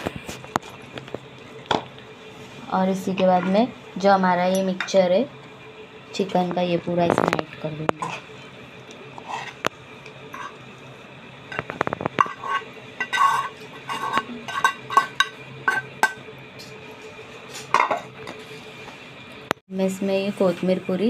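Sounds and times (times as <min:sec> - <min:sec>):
metal spoon scraping a pan: 0:07.3 - 0:08.5, 0:09.2 - 0:09.7, 0:10.3 - 0:10.6, 0:11.5 - 0:16.2.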